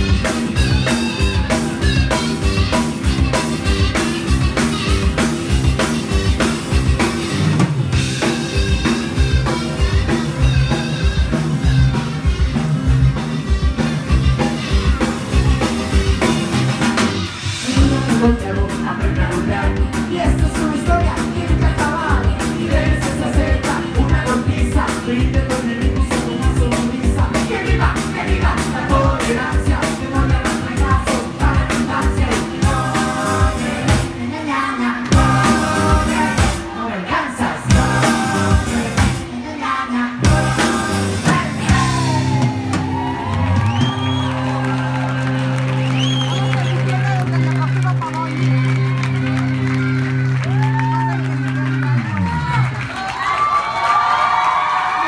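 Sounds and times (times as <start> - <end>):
drum kit beat: 0.0 - 34.3, 35.0 - 36.8, 37.4 - 39.4, 40.2 - 45.9
electric guitars: 0.0 - 34.3, 40.2 - 52.8
person singing: 17.6 - 43.0.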